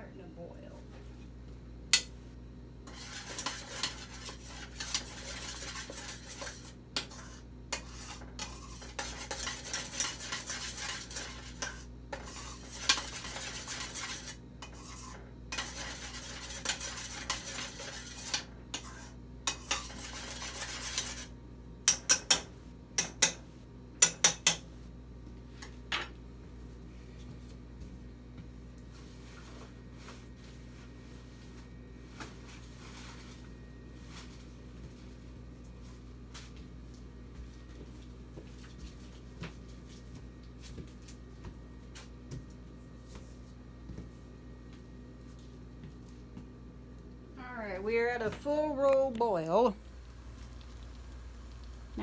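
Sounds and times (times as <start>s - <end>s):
utensil scraping a pot: 2.8s - 21.3s.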